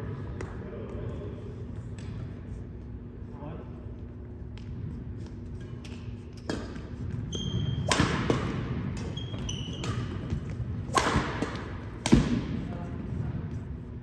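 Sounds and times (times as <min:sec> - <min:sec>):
sneakers squeaking on hardwood: 0:05.6 - 0:07.9, 0:09.0 - 0:10.5
rackets hitting shuttlecock: 0:05.7 - 0:12.6.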